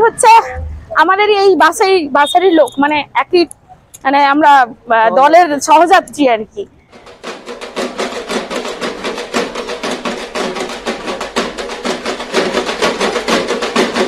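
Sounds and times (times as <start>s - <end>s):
fast steady drumming: 6.9s - 14.0s.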